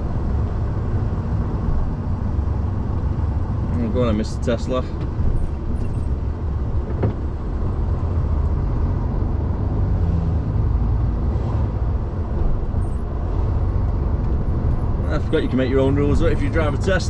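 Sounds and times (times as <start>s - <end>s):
lorry diesel engine rumble: 0.0s - 17.0s
tyres on road: 0.0s - 17.0s.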